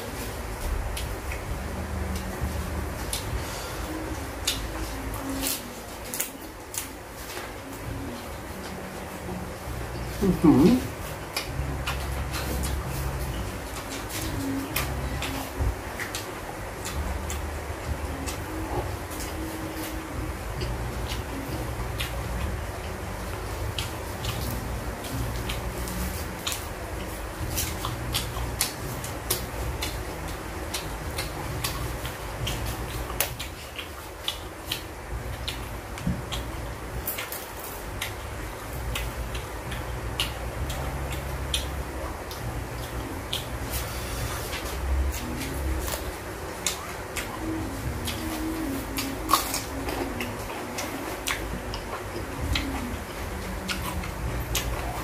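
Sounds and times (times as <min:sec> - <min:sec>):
low steady hum: 0:00.0 - 0:55.0
chewing and handling food clicks: 0:11.0 - 0:20.0, 0:20.6 - 0:43.8, 0:44.4 - 0:55.0.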